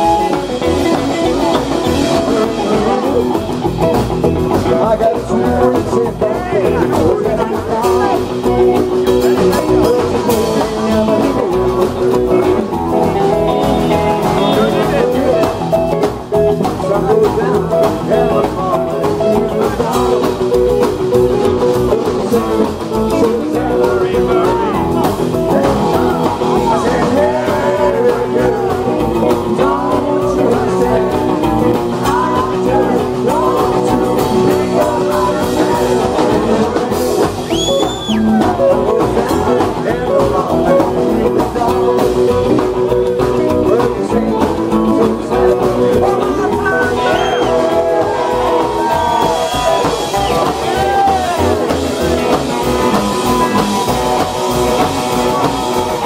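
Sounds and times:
electric guitar: 0.0 - 56.0
man singing: 0.0 - 56.0
upright double bass: 0.0 - 56.0
short high whistle: 37.4 - 38.2, 47.0 - 47.6.

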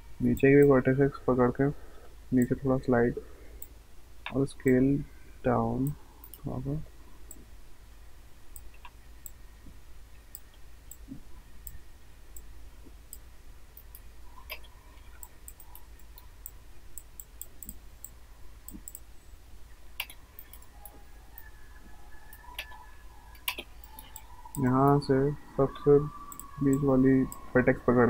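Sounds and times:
low steady hum: 0.0 - 28.0
computer mouse clicking: 5.8 - 6.4, 10.3 - 11.8, 13.8 - 19.1, 20.0 - 21.5, 22.3 - 25.0, 26.3 - 27.5.

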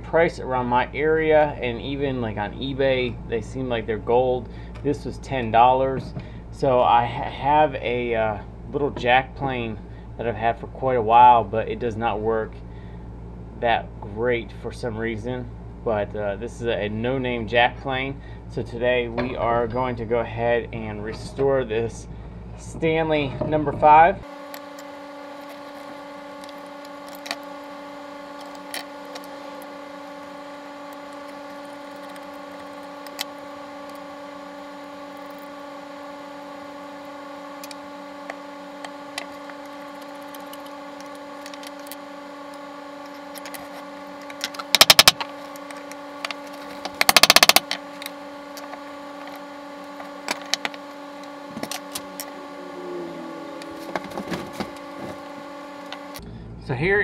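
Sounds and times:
steady hum: 0.0 - 57.0
metal parts clicking and clinking: 43.3 - 45.2, 46.8 - 47.8.

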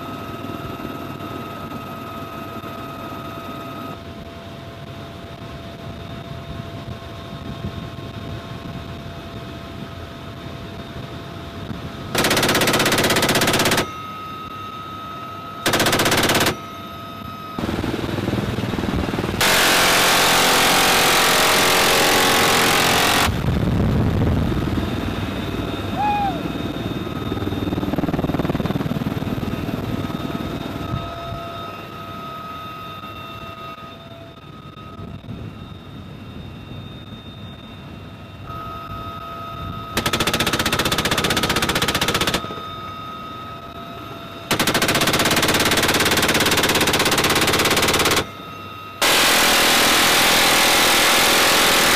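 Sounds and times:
helicopter cabin noise: 0.0 - 51.9
minigun firing bursts: 12.1 - 13.9, 15.6 - 16.6, 17.6 - 23.5, 40.0 - 42.6, 44.5 - 48.3, 49.0 - 51.9.

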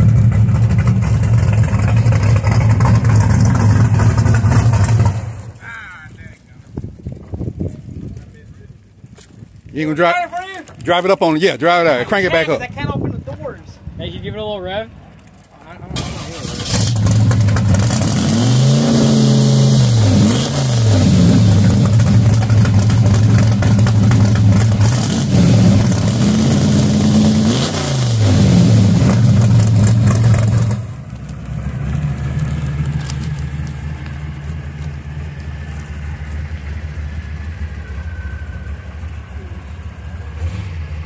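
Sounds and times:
drag car engine revving: 0.0 - 5.6, 15.9 - 41.0
engine idling: 0.0 - 6.0, 21.4 - 25.0, 29.1 - 41.0.

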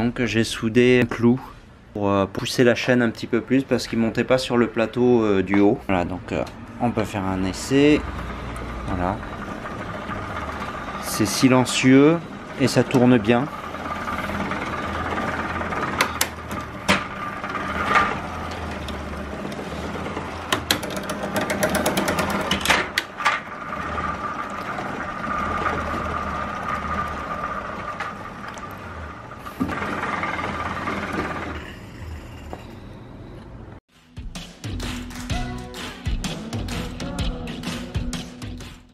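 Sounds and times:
bicycle chain whining: 7.3 - 33.2.

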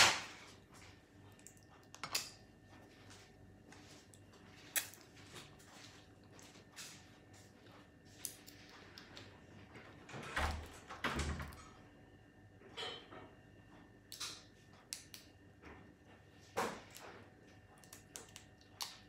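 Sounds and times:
crab shell cracking: 17.8 - 19.0.

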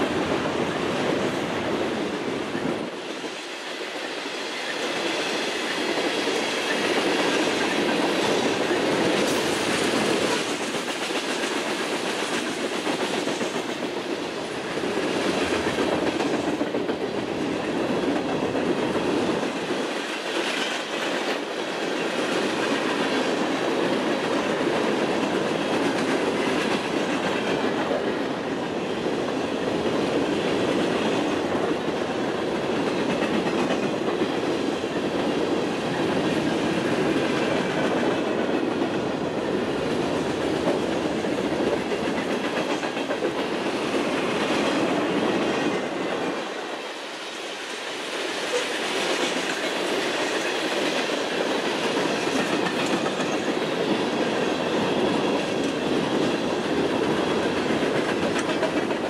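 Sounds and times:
freight train wheels on rails: 0.0 - 59.0.

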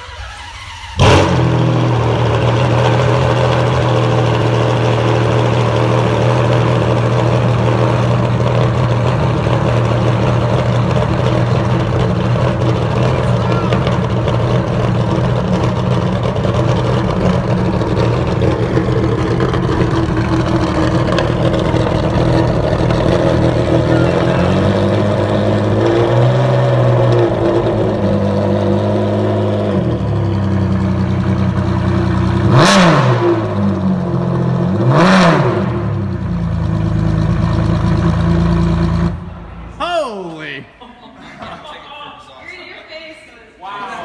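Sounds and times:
engine revving sharply: 0.0 - 2.5
sports car engine idling: 0.1 - 32.8, 35.6 - 39.8.

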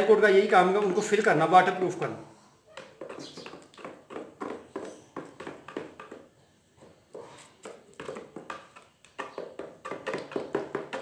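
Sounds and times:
wooden stick scraping plastic jug: 2.8 - 11.0.

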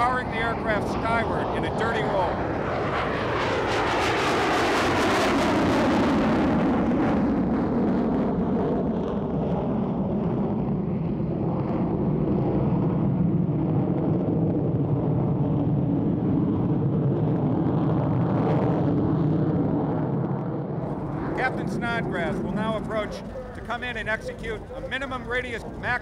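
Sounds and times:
loud jet engine rumble: 0.0 - 26.0.

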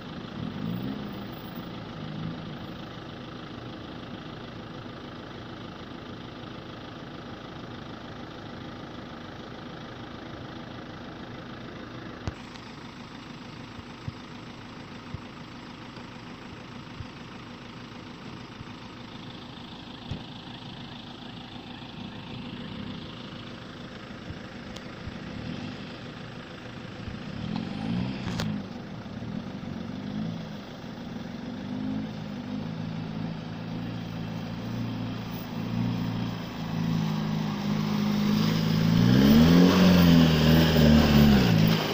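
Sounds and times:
pickup truck engine running: 0.0 - 41.9
truck engine revving in mud: 25.2 - 26.1, 27.0 - 30.7, 31.4 - 41.9.

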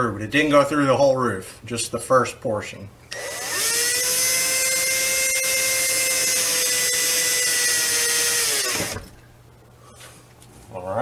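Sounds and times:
cordless drill whining: 3.1 - 9.2.

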